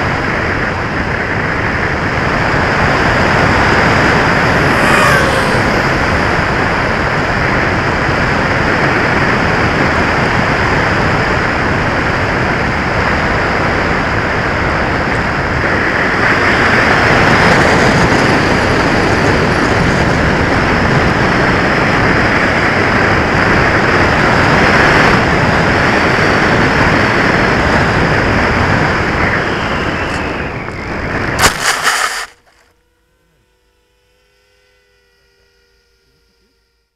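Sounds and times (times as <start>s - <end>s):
airflow rushing over camera: 4.1s - 7.2s, 31.4s - 32.7s
thin steady high tone: 32.9s - 36.9s.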